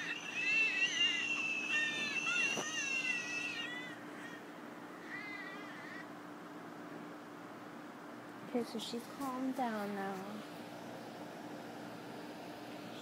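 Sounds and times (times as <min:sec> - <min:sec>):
baby crying: 0:00.0 - 0:06.1
baby whimpering: 0:00.0 - 0:06.1.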